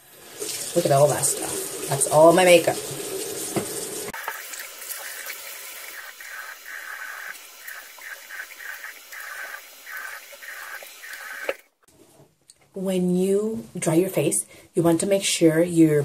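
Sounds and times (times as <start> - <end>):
water splashing on face: 4.2 - 11.7.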